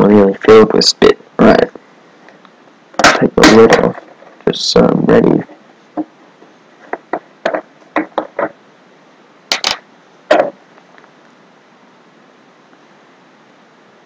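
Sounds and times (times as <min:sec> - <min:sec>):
container lid clicks and knocks: 0:09.5 - 0:10.6.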